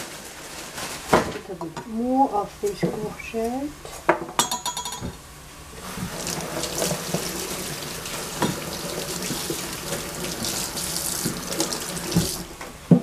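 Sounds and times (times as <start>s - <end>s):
tap running into sink: 5.9s - 13.0s.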